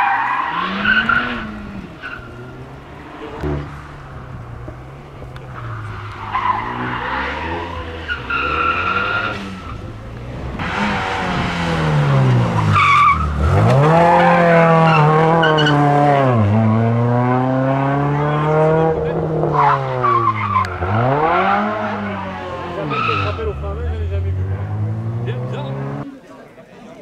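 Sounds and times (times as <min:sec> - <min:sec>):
tyres squealing: 0:00.0 - 0:11.3, 0:19.5 - 0:26.0
rally car engine revving: 0:00.0 - 0:26.1.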